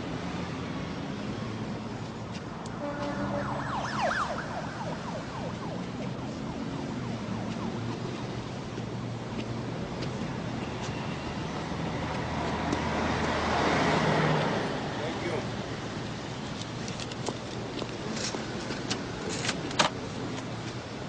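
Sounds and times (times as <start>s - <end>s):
traffic ambience: 0.0s - 21.0s.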